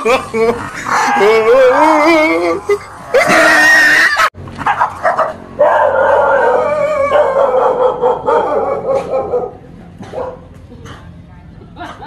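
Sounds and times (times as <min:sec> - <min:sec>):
dog howling: 0:00.9 - 0:02.5, 0:05.6 - 0:09.5
dog barking: 0:04.7 - 0:10.5.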